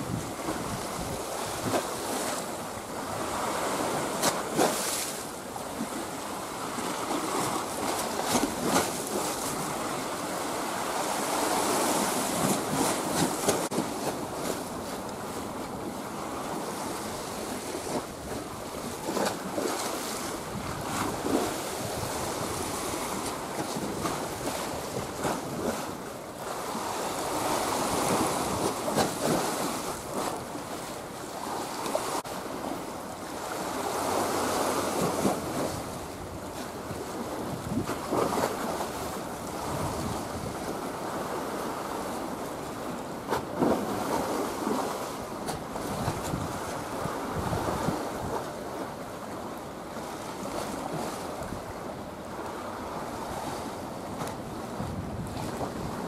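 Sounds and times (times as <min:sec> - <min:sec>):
wind buffeting microphone: 0:00.0 - 0:02.2, 0:16.6 - 0:25.9, 0:34.9 - 0:41.4, 0:43.6 - 0:48.7, 0:52.9 - 0:56.0
waves splashing on shore: 0:00.0 - 0:56.0.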